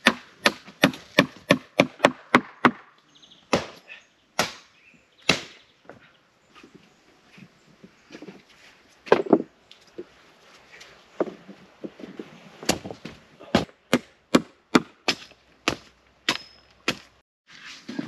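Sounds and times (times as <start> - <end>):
wood being chopped: 0.0 - 2.9, 3.5 - 3.8, 4.4 - 5.6, 12.6 - 17.1.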